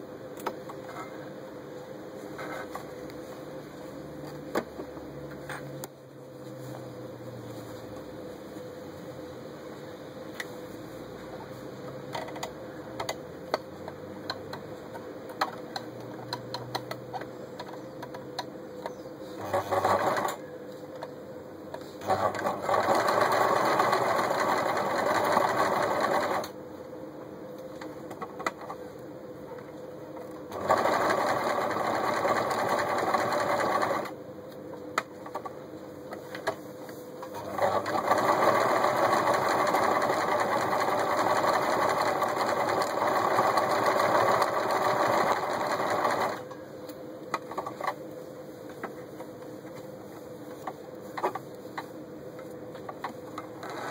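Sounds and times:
sewing machine stitching: 19.4s - 20.4s, 22.0s - 26.5s, 30.5s - 34.1s, 37.3s - 46.4s.

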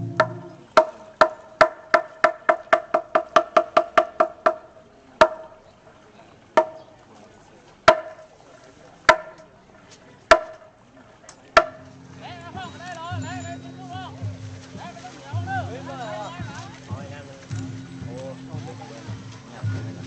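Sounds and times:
pitched percussion strokes: 0.0s - 1.0s, 11.6s - 20.0s.

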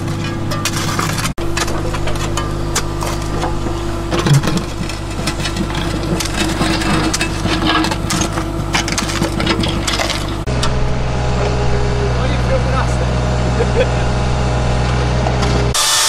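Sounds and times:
bucket scraping stony soil: 0.0s - 10.5s
stones crunching: 0.0s - 10.5s
spade scraping soil: 0.0s - 10.6s
diesel engine running: 0.0s - 16.0s.

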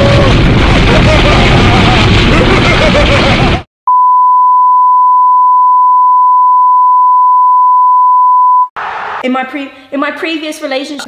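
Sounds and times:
loud explosion: 0.0s - 3.7s
steady test-tone beep: 3.9s - 8.7s.

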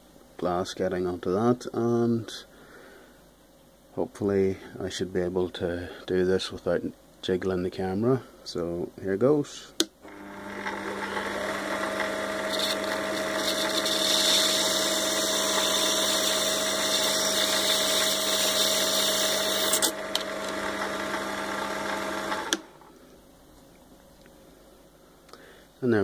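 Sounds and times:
lathe motor hum: 10.1s - 22.7s
file grinding glass with gritty hiss: 12.4s - 19.9s.

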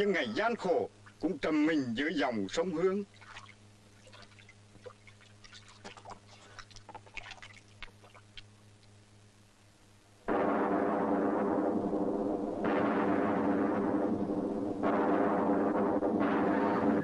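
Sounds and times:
faint low hum: 0.0s - 17.0s
soft crackles: 2.5s - 10.2s.

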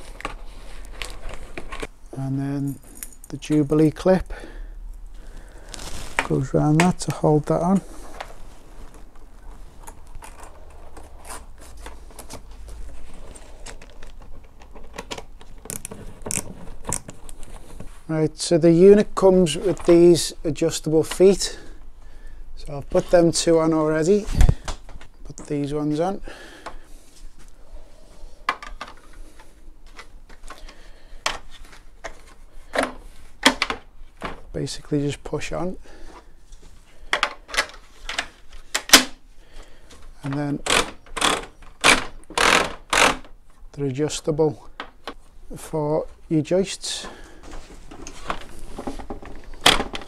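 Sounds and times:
screw clicks: 40.6s - 43.3s.

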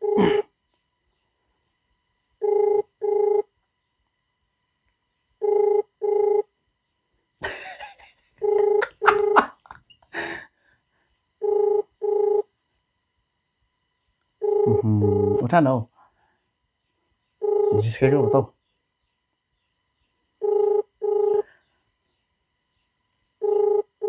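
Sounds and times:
phone ringback tone: 2.4s - 3.5s, 5.4s - 6.5s, 8.4s - 9.5s, 11.4s - 12.5s, 14.4s - 15.4s, 17.4s - 18.4s, 20.4s - 21.5s, 23.4s - 24.0s.

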